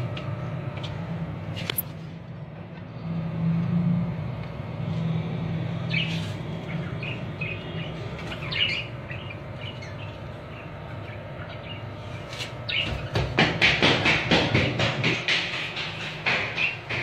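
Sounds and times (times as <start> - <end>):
steady low hum: 0.0 - 17.0
budgies chirping: 5.9 - 13.2.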